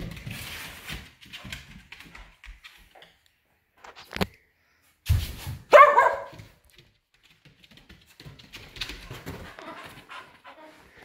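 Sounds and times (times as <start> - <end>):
puppy barking: 5.7 - 6.4.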